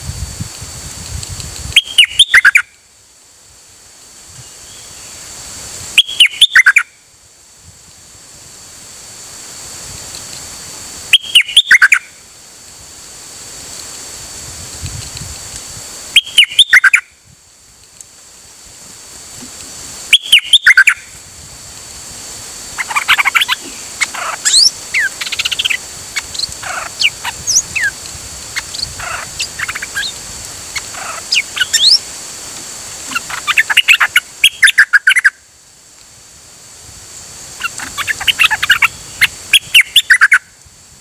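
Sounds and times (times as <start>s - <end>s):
songbird whistling phrases: 1.8s - 2.7s, 6.0s - 6.9s, 11.1s - 12.0s, 16.2s - 17.0s, 20.1s - 21.0s, 33.1s - 35.4s, 39.6s - 40.4s
bird rapid chattering: 11.2s - 12.0s, 16.2s - 17.0s, 20.1s - 21.0s, 22.7s - 32.0s, 33.0s - 35.3s, 37.6s - 40.4s.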